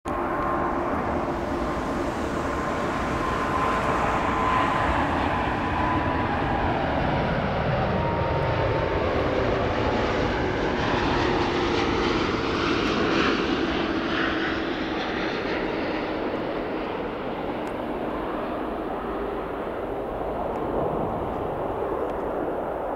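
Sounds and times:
jet roar with high whine: 0:00.1 - 0:22.9.

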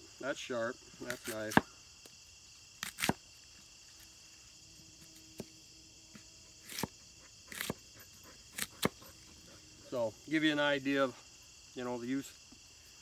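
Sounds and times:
crickets chirring: 0:00.0 - 0:13.0
hatchet slicing produce on wood: 0:01.0 - 0:01.7, 0:02.8 - 0:03.2, 0:06.1 - 0:07.9, 0:08.5 - 0:09.1.

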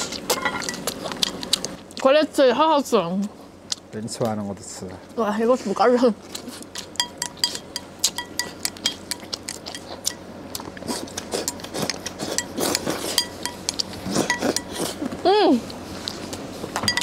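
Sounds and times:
utensils clinking on ceramic bowls: 0:00.3 - 0:01.4, 0:06.9 - 0:10.2, 0:12.3 - 0:14.8, 0:16.8 - 0:17.0.

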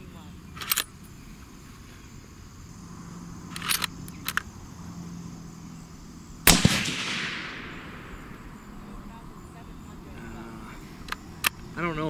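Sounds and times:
faint sharp sounds: 0:00.0 - 0:12.0
suppressed rifle shot with echo: 0:06.4 - 0:09.0.

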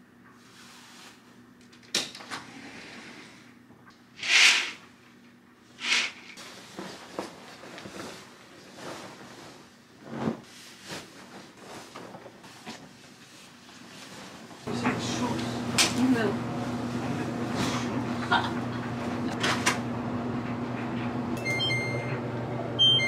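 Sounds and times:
bedding rustling: 0:06.4 - 0:15.2.

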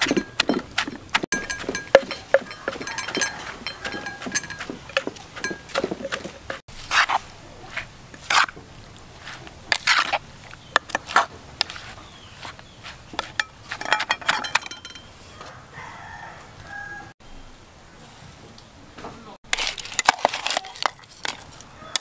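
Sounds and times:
spoon and pestle clinking in mortar: 0:00.0 - 0:07.2, 0:09.3 - 0:15.1, 0:19.5 - 0:22.0
rooster crowing: 0:02.4 - 0:04.7, 0:15.3 - 0:17.2.

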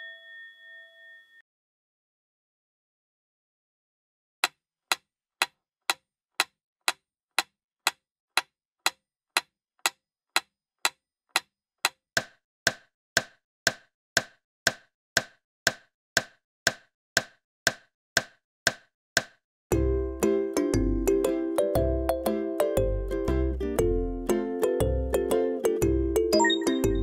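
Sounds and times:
metronome ticking: 0:20.2 - 0:27.0.

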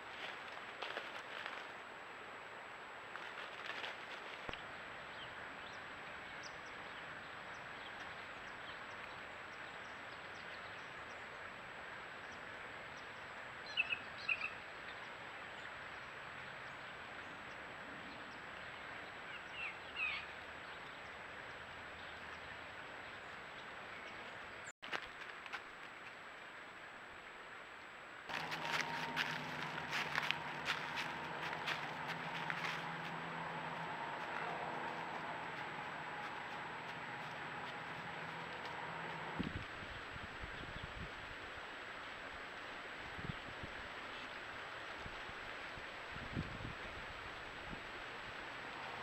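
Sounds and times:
rustling in dry leaves: 0:00.0 - 0:02.0, 0:03.0 - 0:04.8, 0:28.3 - 0:49.0
outdoor background hiss: 0:00.0 - 0:49.0.

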